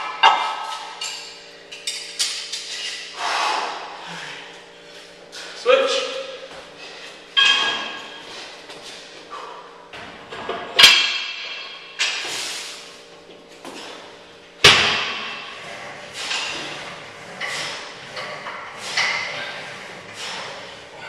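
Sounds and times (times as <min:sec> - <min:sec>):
gym weights clanking: 0:07.4 - 0:08.3.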